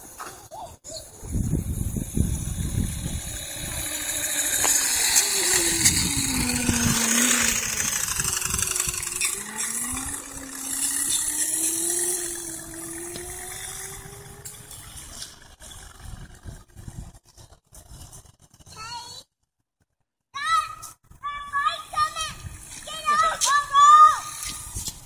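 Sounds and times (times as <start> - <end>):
dirt bike motor whining: 1.0 - 18.2, 22.0 - 25.0
low rumbling gusts: 1.2 - 18.4.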